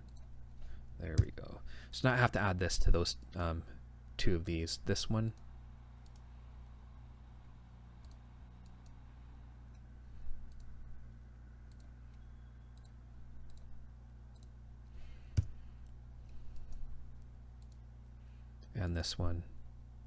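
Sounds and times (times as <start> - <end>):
steady low hum: 0.0 - 20.0
computer mouse clicking: 6.0 - 6.3, 8.0 - 9.0, 10.5 - 10.7, 11.7 - 12.2, 12.8 - 13.7, 14.3 - 14.5, 16.5 - 17.8.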